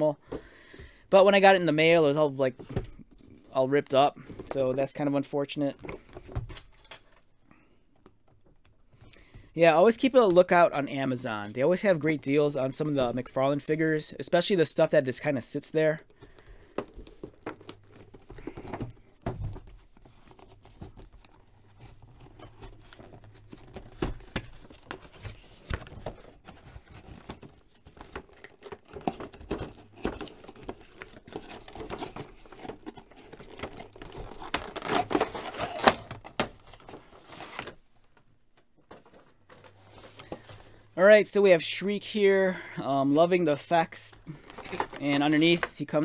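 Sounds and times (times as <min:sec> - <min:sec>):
packaging rustling and crinkling: 0:16.0 - 0:40.8, 0:44.1 - 0:46.0.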